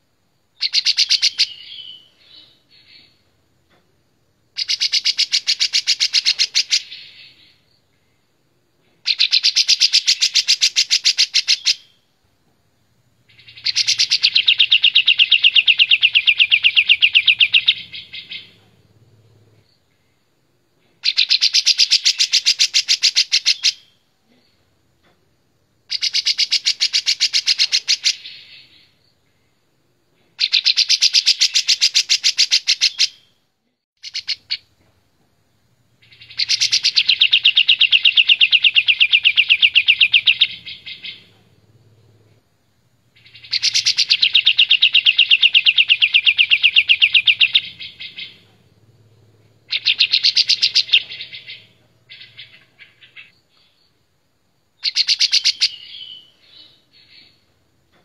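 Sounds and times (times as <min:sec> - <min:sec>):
bird singing fast trills: 0:00.6 - 0:03.1, 0:04.6 - 0:07.6, 0:09.1 - 0:12.0, 0:13.2 - 0:19.5, 0:21.0 - 0:24.0, 0:25.9 - 0:29.0, 0:30.4 - 0:33.3, 0:34.0 - 0:34.6, 0:35.9 - 0:42.2, 0:43.2 - 0:53.8, 0:54.8 - 0:57.4.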